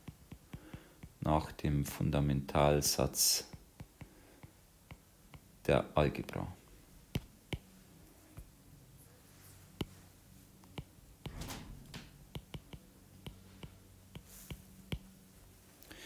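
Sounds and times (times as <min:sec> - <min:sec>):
stylus tapping on tablet screen: 0:00.0 - 0:01.2, 0:03.5 - 0:05.6, 0:07.0 - 0:08.6, 0:09.7 - 0:10.0, 0:10.6 - 0:11.4, 0:12.2 - 0:15.2
faint low hum: 0:00.0 - 0:16.0.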